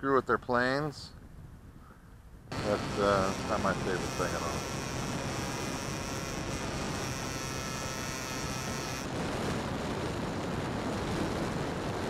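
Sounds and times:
electric motor humming: 2.5s - 11.2s
faint high whine: 2.5s - 11.2s
wind rush: 8.4s - 12.0s.

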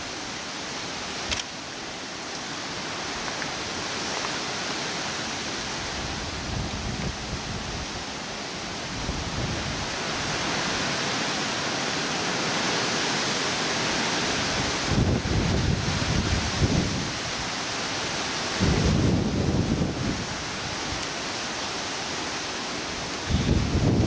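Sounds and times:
wind rustling leaves: 0.0s - 24.0s
wind buffeting microphone: 5.7s - 8.0s, 8.9s - 10.4s, 14.4s - 17.4s, 18.6s - 21.0s, 23.2s - 24.0s.

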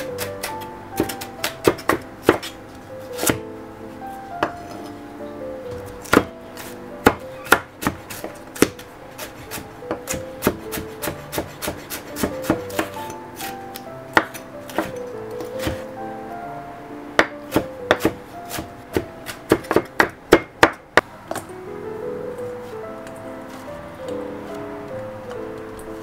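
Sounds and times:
light background music: 0.0s - 26.0s
knife chopping on wooden board: 0.2s - 2.6s, 3.2s - 3.4s, 5.8s - 15.8s, 17.2s - 20.8s.

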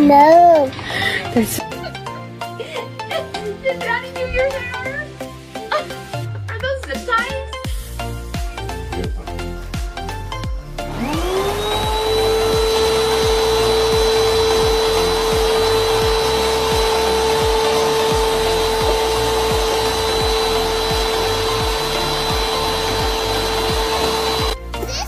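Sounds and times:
vacuum cleaner motor whine: 10.8s - 24.6s.

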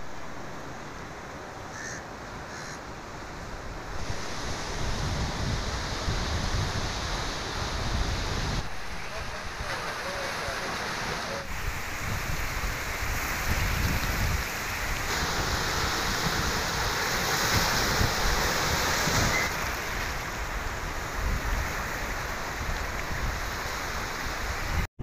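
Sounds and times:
wind buffeting microphone: 3.8s - 9.7s, 11.4s - 24.9s
surf breaking over rocks: 3.9s - 24.8s.

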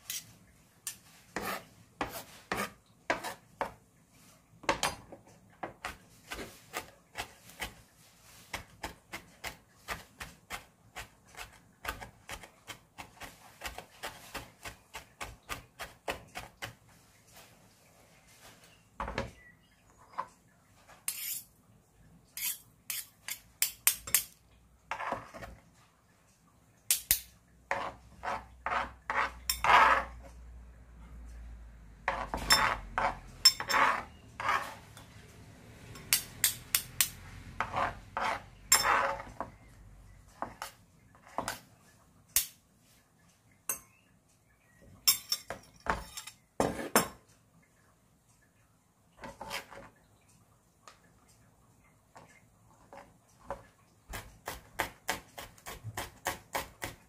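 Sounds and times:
utensils and dishes clinking: 32.1s - 34.6s, 45.0s - 47.3s.

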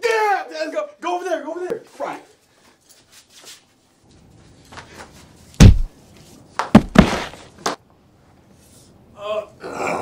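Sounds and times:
light knocks and scuffs: 4.7s - 5.9s, 6.6s - 7.4s
heavy thump: 5.6s - 5.9s, 6.7s - 7.4s.

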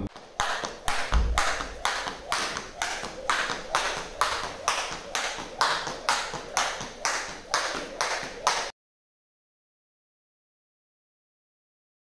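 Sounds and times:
jump rope slapping tiled floor: 0.1s - 8.7s.

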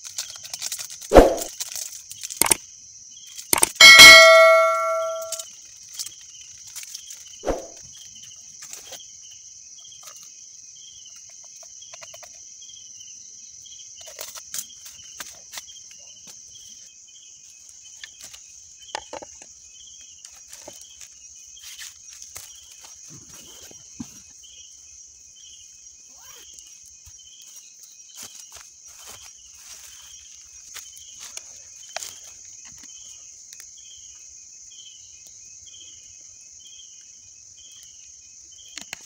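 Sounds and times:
night insects chirring: 0.0s - 39.0s
metal spoon clanging on saucepan: 3.8s - 5.4s.

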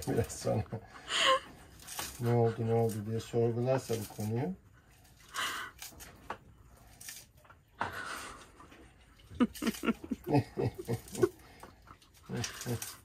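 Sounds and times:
man chuckling: 9.3s - 11.5s.

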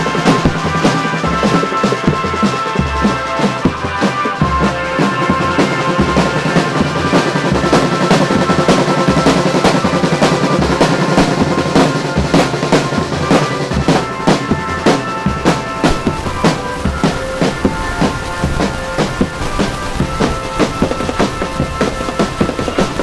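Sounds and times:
snare drums in fast beats: 0.0s - 23.0s
steady held music notes: 0.0s - 23.0s
bass drum: 7.6s - 23.0s.

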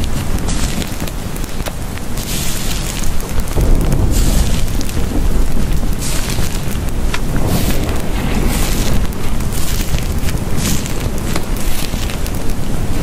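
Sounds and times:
dense rumbling noise with hiss: 0.0s - 13.0s.

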